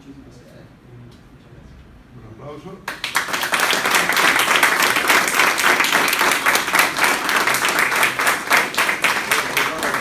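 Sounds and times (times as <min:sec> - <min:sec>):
audience applause: 0:02.9 - 0:10.0.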